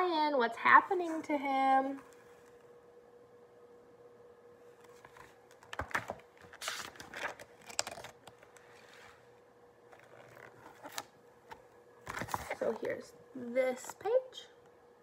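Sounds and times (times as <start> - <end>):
faint steady hum: 0.0 - 15.0
book pages turning: 4.8 - 9.3, 9.9 - 13.0.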